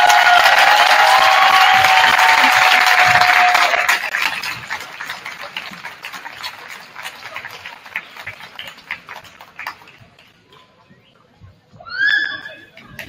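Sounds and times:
crowd applause and cheering: 0:00.0 - 0:10.2.

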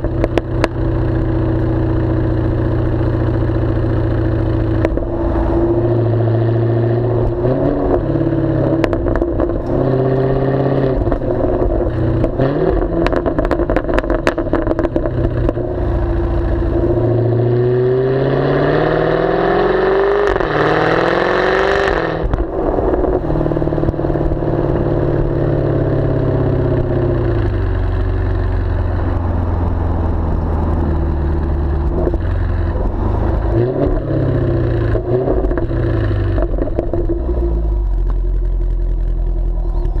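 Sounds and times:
exhaust pops and cracks: 0:00.0 - 0:00.8, 0:11.0 - 0:15.7, 0:22.2 - 0:24.8, 0:34.8 - 0:40.0
car exhaust revving: 0:00.0 - 0:40.0.

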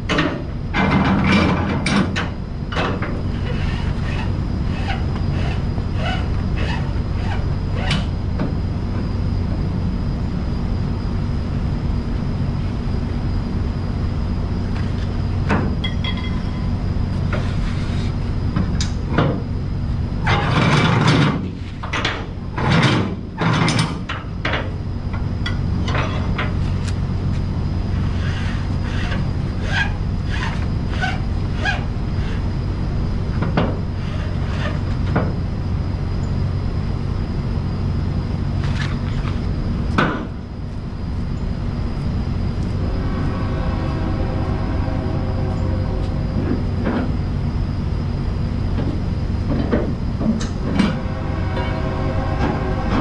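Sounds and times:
noisy rushes: 0:39.7 - 0:53.0.

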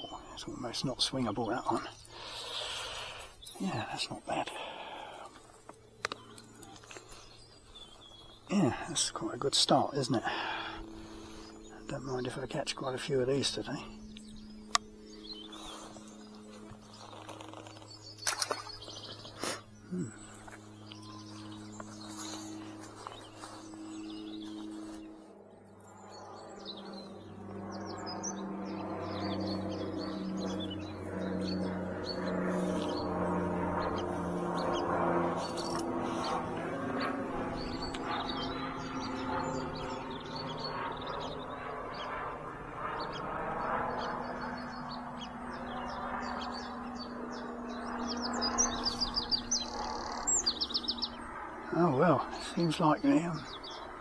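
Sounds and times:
broad rushing hum: 0:00.0 - 0:54.0
small birds chirping: 0:00.0 - 0:54.0.

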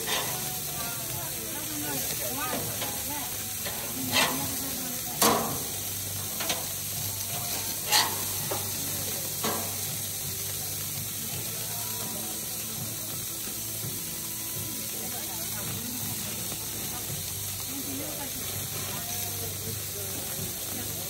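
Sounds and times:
metal spatula clacking on grill: 0:00.0 - 0:00.8, 0:02.0 - 0:10.1
burgers sizzling: 0:00.0 - 0:21.0.

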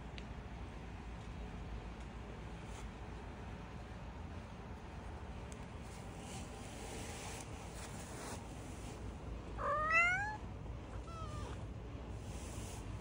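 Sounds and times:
cat meowing: 0:09.6 - 0:11.6.

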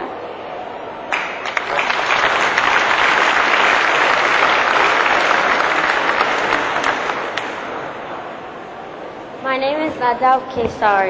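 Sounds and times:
audience applauding: 0:01.1 - 0:08.2.

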